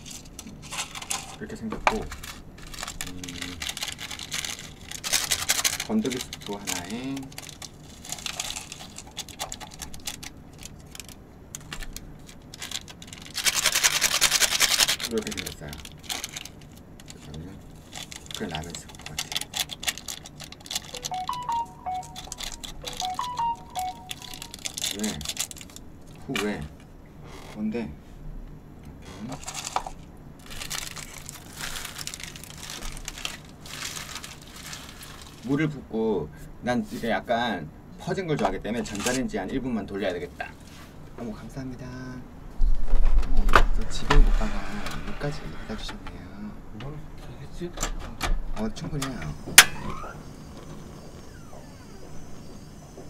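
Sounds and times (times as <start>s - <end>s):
plastic sachet crinkling: 1.9s - 26.2s, 29.4s - 35.5s
flakes rattling into cup: 2.0s - 11.9s, 12.5s - 21.0s, 29.4s - 35.5s.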